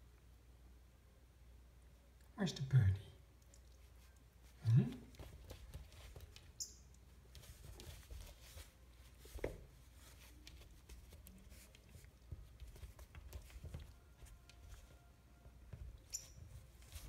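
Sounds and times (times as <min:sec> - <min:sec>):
puppy paws scratching glass door: 0:05.2 - 0:15.1.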